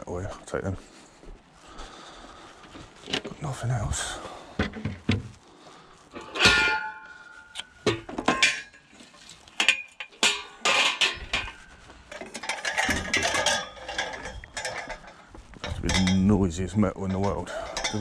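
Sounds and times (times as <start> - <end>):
scrap metal clanking: 6.1 - 18.0.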